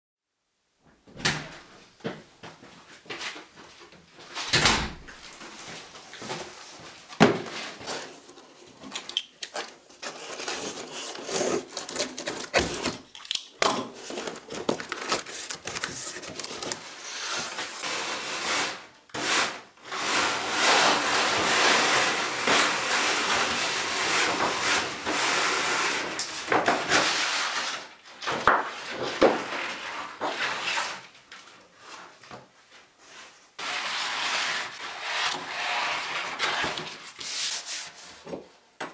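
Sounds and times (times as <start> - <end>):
wood veneer sheets rubbing and rustling: 14.0 - 27.9, 28.5 - 31.1, 31.8 - 38.5.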